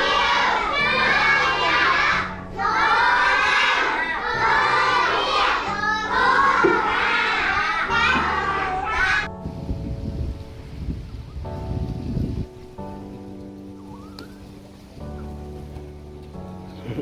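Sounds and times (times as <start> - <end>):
children singing: 0.0 - 9.3
instrumental backing music: 0.0 - 17.0.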